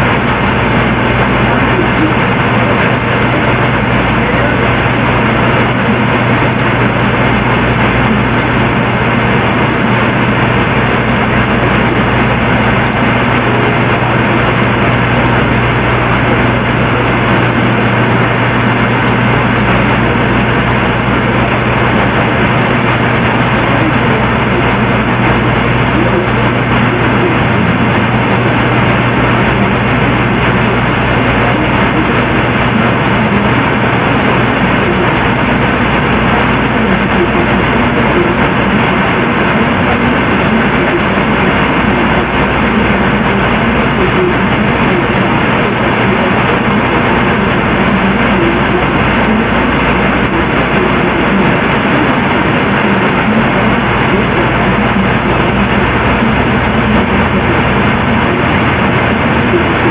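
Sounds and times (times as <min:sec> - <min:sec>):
faint low hum: 0:00.0 - 0:59.9
static-like hiss and rumble: 0:00.0 - 0:59.9.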